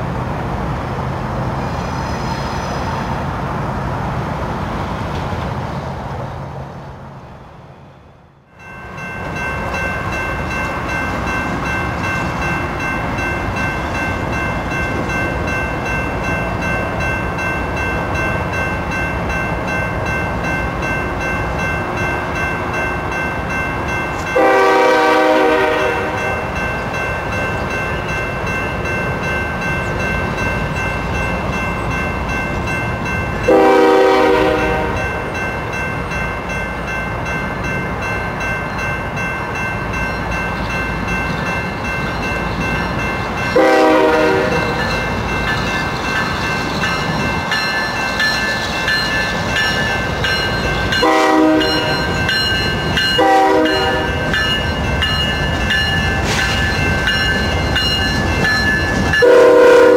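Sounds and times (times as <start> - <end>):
locomotive rumble and whine: 0.0 - 59.9
train air horn blasts: 24.4 - 26.4, 33.5 - 35.0, 43.6 - 44.8, 51.0 - 52.0, 53.2 - 54.3, 59.2 - 59.9.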